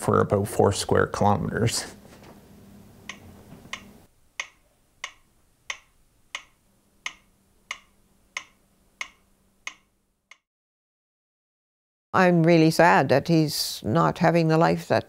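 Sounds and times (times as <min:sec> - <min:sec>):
metronome ticking: 0:03.1 - 0:10.4.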